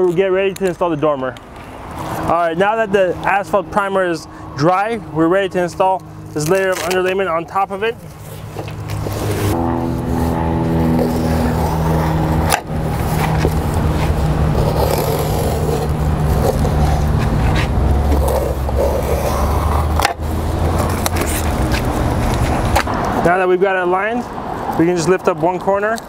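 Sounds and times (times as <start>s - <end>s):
low motor hum: 3.2s - 23.2s
roofing underlayment scraping and rustling: 5.6s - 19.8s.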